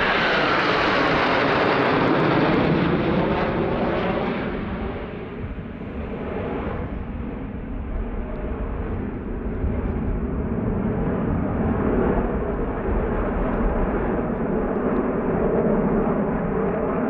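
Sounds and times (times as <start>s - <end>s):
jets flying past: 0.0s - 7.7s.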